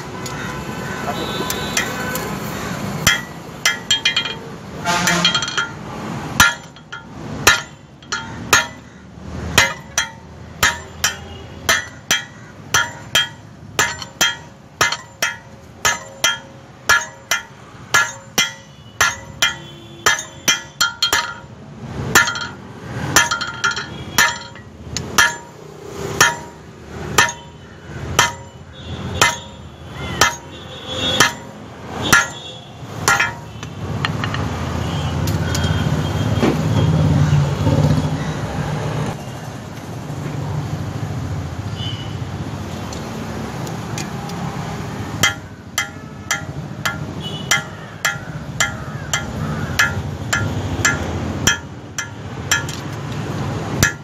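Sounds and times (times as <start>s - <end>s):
hammer striking steel on anvil: 3.0s - 8.9s, 9.6s - 21.5s, 22.1s - 28.6s, 29.2s - 34.5s, 45.2s - 54.0s.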